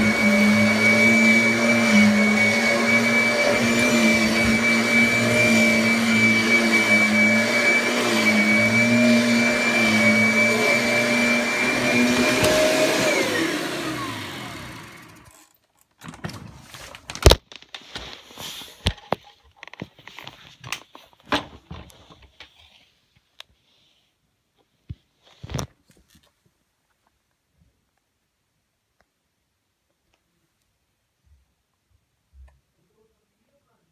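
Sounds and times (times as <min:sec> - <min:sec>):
vacuum cleaner motor whine: 0:00.0 - 0:15.5.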